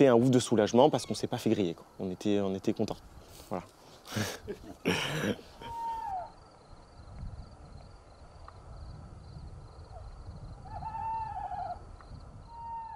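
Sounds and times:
owl hooting: 5.6 - 6.4, 9.9 - 11.9, 12.5 - 12.9.

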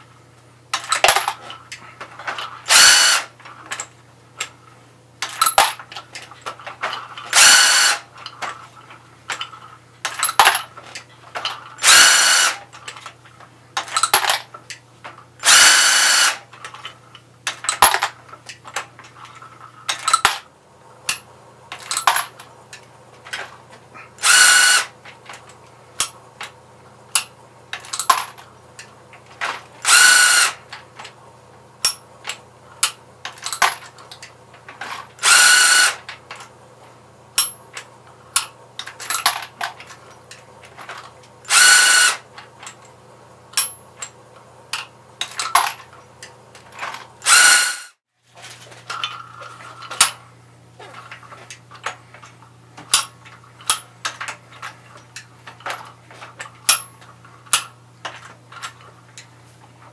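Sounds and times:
cordless drill whining: 2.7 - 3.3, 7.3 - 8.0, 11.8 - 12.6, 15.4 - 16.4, 24.2 - 24.9, 29.8 - 30.6, 35.2 - 36.0, 41.5 - 42.2, 47.2 - 47.9
brass cases clinking: 21.1 - 22.5.

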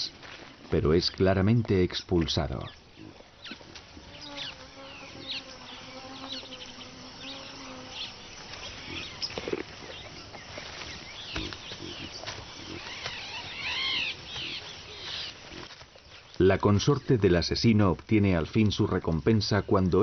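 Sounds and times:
birds chirping: 0.8 - 20.0
fly buzzing: 3.0 - 15.8.

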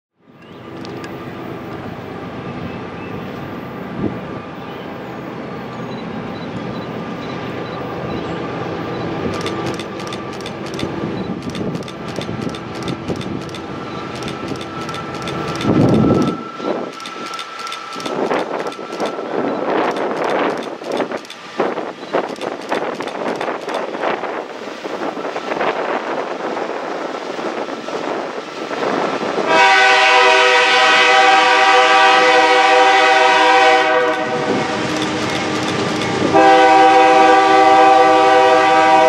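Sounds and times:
diesel locomotive drone: 0.2 - 39.0.

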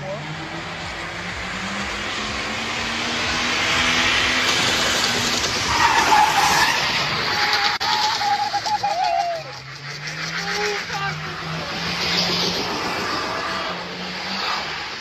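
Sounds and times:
car engine at high revs: 0.0 - 15.0
tyres spinning and skidding: 3.4 - 15.0.

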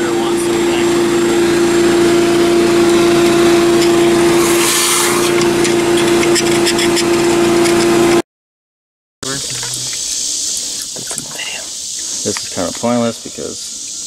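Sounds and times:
shop vacuum running: 0.0 - 8.2.

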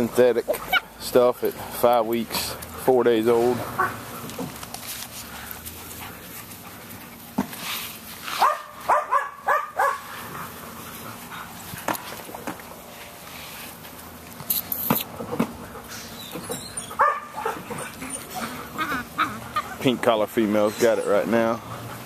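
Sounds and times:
puppies barking: 0.0 - 4.6, 8.3 - 12.5, 15.2 - 22.0
rustles and clicks: 3.4 - 9.0.

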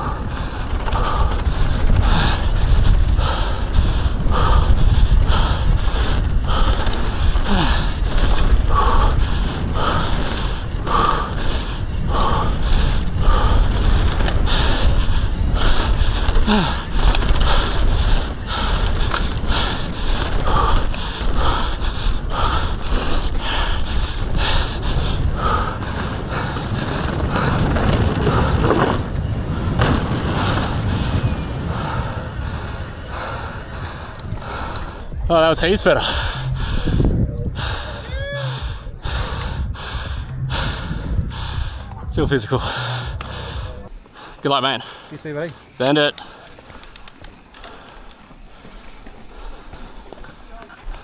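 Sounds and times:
tyre rumble: 0.0 - 35.0
bike rattling over bumps: 0.0 - 51.0
rider breathing hard: 0.0 - 51.0
wind buffeting: 0.0 - 51.0.

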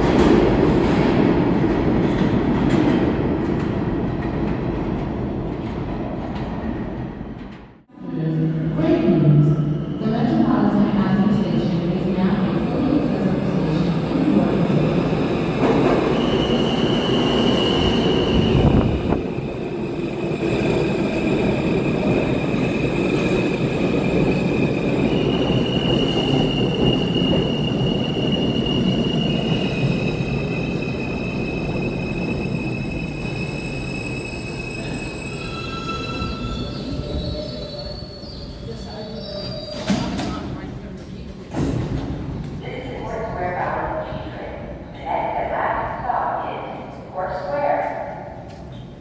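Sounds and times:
high squeal of brakes: 25.1 - 40.2.

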